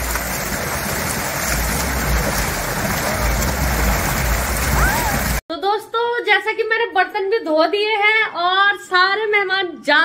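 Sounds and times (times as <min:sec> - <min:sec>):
water gushing from pipe: 0:00.0 - 0:05.4.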